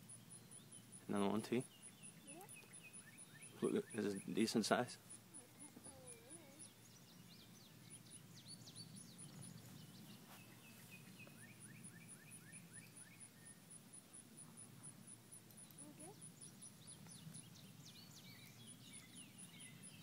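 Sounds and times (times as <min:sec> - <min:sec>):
faint high-pitched ticking: 0:00.0 - 0:06.8, 0:11.2 - 0:20.0
bird chirps: 0:00.0 - 0:20.0.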